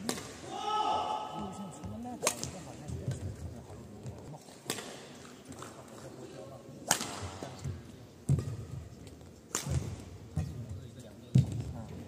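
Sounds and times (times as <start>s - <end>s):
racket hitting shuttlecock: 0.0s - 0.5s, 2.2s - 2.6s, 4.6s - 5.1s, 6.8s - 7.6s, 8.3s - 8.8s, 9.5s - 10.6s.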